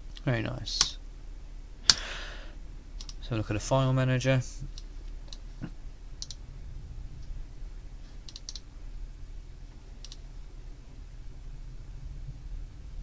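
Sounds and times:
faint low hum: 0.0s - 13.0s
computer mouse clicking: 3.0s - 3.2s, 6.2s - 6.4s, 8.2s - 8.6s, 10.0s - 10.2s.

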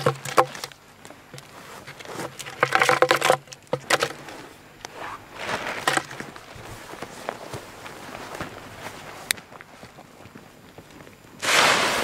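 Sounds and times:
rustling in dry grass: 4.2s - 10.5s.

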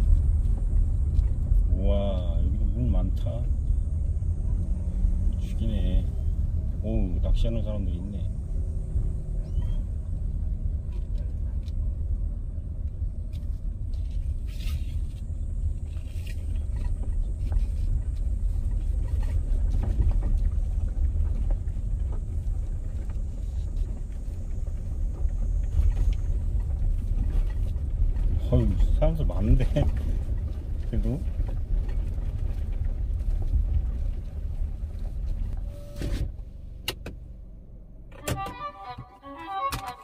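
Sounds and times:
car engine and tyres rumbling: 0.0s - 40.0s.

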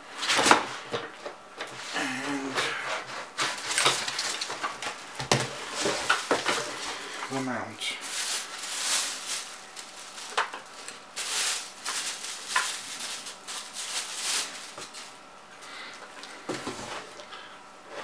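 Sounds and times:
bubble wrap rustling and crinkling: 2.9s - 15.3s.

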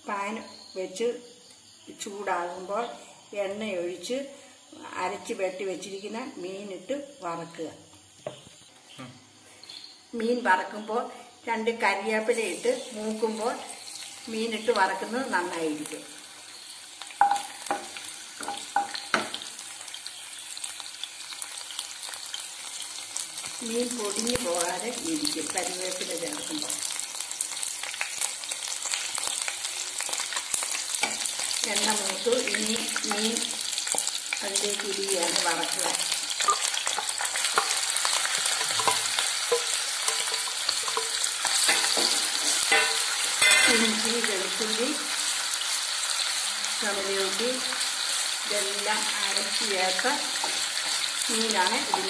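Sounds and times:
leaves sizzling in oil: 0.0s - 52.0s
utensil tapping a pan: 17.2s - 19.4s, 38.6s - 43.8s
oil popping and crackling: 26.4s - 46.3s.

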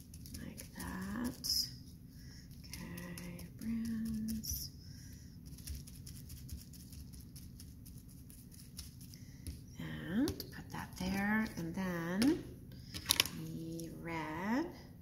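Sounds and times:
paintbrush dabbing bubble wrap: 0.0s - 11.7s.

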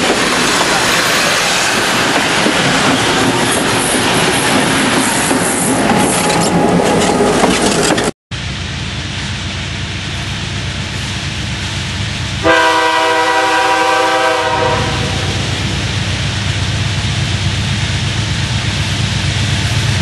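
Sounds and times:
train rumble: 0.0s - 20.0s
locomotive air horn blast: 12.4s - 15.6s.

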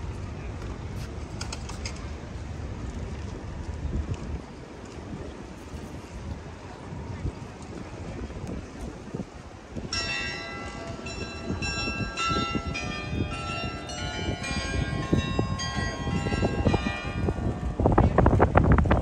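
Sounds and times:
low city rumble: 0.0s - 19.0s
wind: 0.0s - 19.0s
carillon bells playing a tune: 9.8s - 18.0s.

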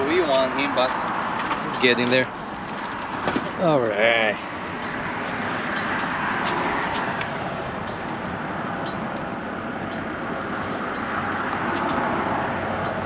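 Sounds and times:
road noise of passing traffic: 0.0s - 13.0s.

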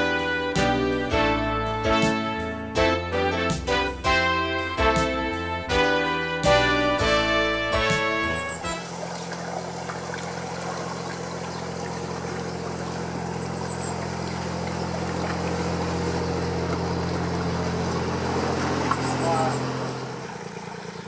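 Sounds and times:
boat diesel engine running: 0.0s - 21.0s.

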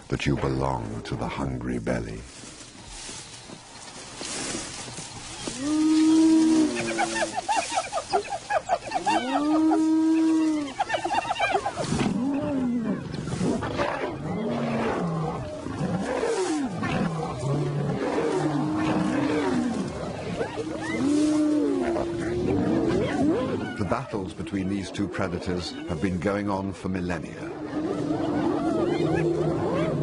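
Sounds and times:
animal calls rising and falling: 5.4s - 13.4s
snarls and growls: 12.0s - 26.2s, 27.3s - 30.0s.

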